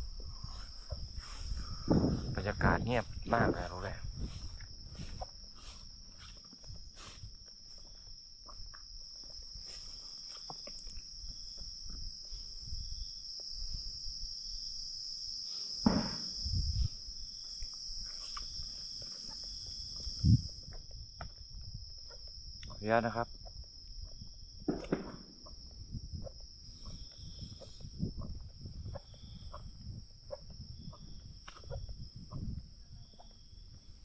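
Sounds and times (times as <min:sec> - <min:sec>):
night insects chirring: 0:00.0 - 0:34.0
short low thumps: 0:00.3 - 0:05.0.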